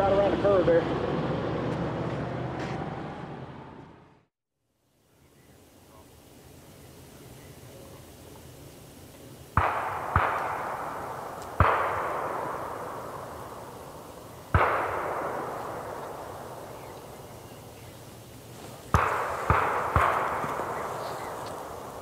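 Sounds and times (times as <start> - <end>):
gunshots with echo: 9.5 - 17.9, 18.9 - 22.0.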